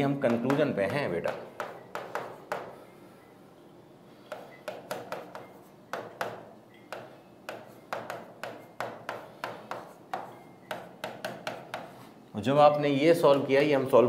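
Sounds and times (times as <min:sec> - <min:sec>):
pen tapping on writing board: 0:00.2 - 0:02.8, 0:04.3 - 0:12.0.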